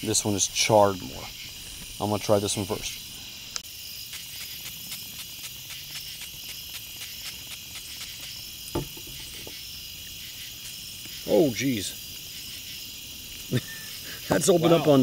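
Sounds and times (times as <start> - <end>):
crickets chirping: 0.0 - 15.0
spray bottle spritzes: 3.9 - 11.1
knock: 8.7 - 9.6.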